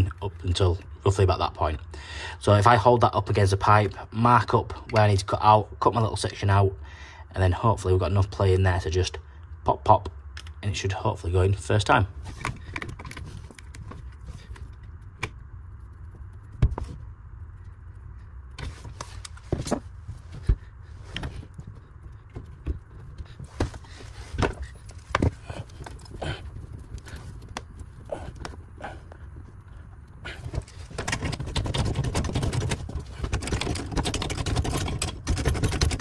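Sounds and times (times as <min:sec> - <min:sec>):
steady low hum: 0:00.0 - 0:36.0
clicks and knocks of handling: 0:12.2 - 0:17.0, 0:18.5 - 0:36.0.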